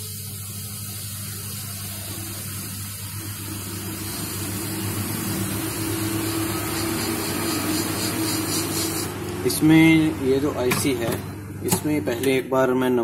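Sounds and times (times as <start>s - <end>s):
hot-air rework station hissing: 0.0s - 12.5s.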